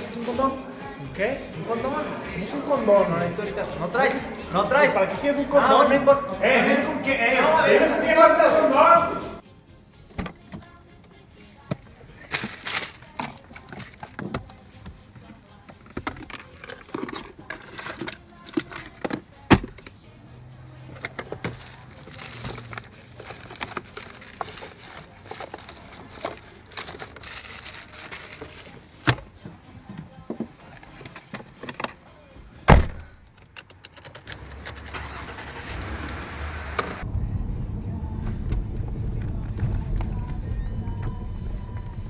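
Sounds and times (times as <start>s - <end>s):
plastic wrapper crinkling: 21.6s - 28.8s.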